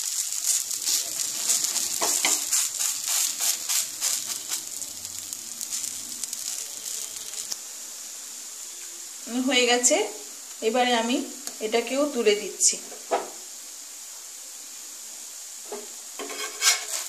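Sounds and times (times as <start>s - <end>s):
oil sizzling and crackling: 0.0s - 17.0s
spatula pressing pancake: 0.2s - 4.8s, 16.2s - 17.0s.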